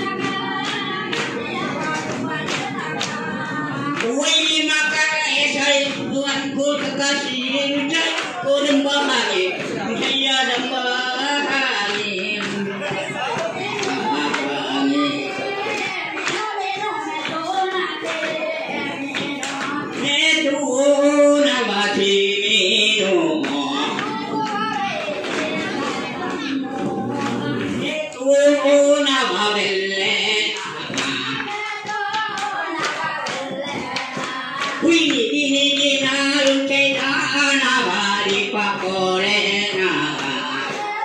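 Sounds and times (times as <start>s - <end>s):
hand claps: 0.0s - 20.6s, 23.3s - 28.3s, 29.0s - 41.0s
voices singing: 0.0s - 41.0s.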